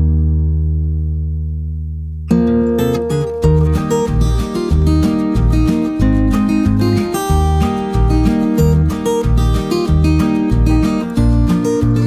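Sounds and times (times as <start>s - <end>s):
steady bass beat: 1.1s - 12.0s
strummed acoustic guitar: 2.2s - 12.0s.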